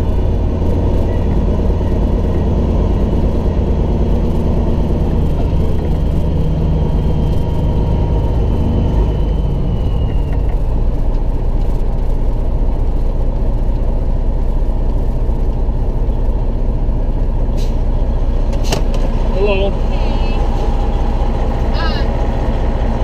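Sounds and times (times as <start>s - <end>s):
diesel truck engine drone: 0.0s - 23.0s.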